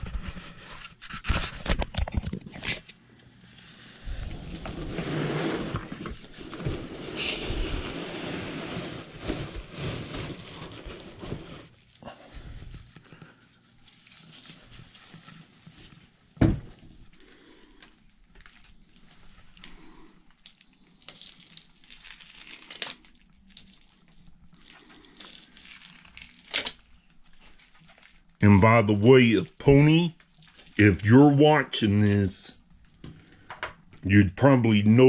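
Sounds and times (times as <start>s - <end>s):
plastic wrap crinkling: 7.0s - 16.3s, 17.9s - 28.4s, 29.9s - 31.4s.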